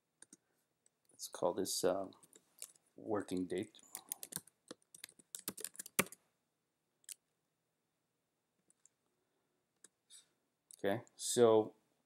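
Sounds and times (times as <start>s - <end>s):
typing on computer keyboard: 3.8s - 6.2s.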